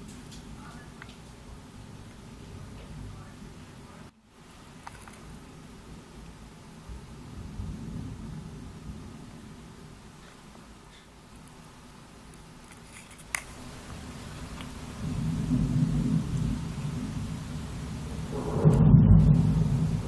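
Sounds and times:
thunder rumbling: 0.0 - 4.1, 5.2 - 10.3, 13.5 - 20.0.

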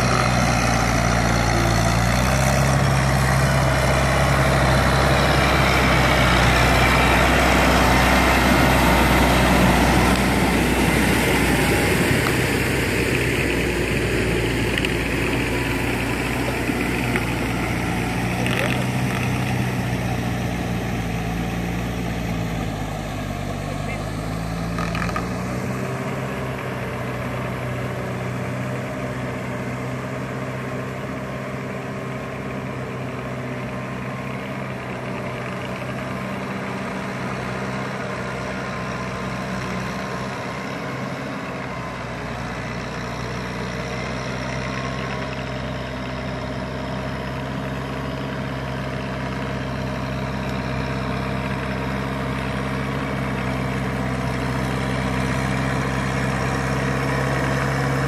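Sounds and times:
tractor diesel engine drone: 0.0 - 58.0.

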